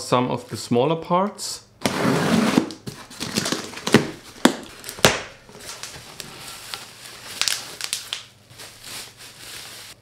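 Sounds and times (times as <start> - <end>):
cardboard and bubble wrap rustling: 1.8 - 10.0
crinkling: 2.9 - 10.0.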